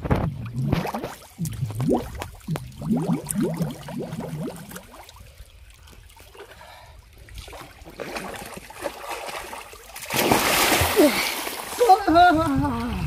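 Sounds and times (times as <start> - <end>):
pool water sloshing: 0.3 - 13.0
bubbly chirps: 0.5 - 5.2.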